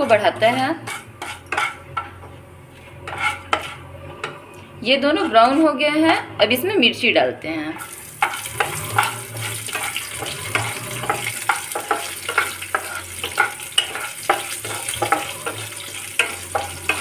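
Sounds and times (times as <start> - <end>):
spatula scraping a pan: 0.0 - 6.0, 7.8 - 17.0
chillies sizzling in hot oil: 7.8 - 17.0.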